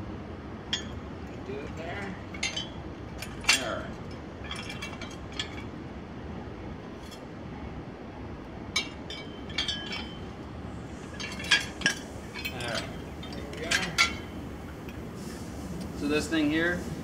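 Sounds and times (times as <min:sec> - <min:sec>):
steady background noise: 0:00.0 - 0:17.0
metal parts clinking and rattling: 0:00.7 - 0:05.7, 0:08.8 - 0:15.1.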